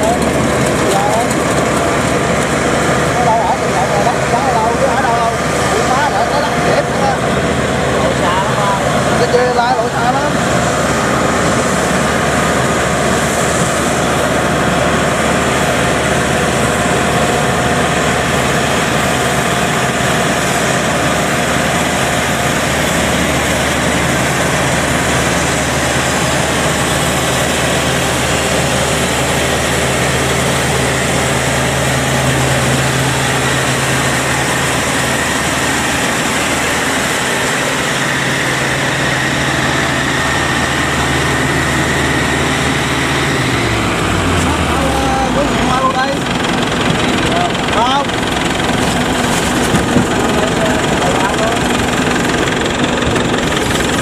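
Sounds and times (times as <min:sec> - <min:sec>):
combine harvester running: 0:00.0 - 0:54.0
steady high whine: 0:00.0 - 0:54.0.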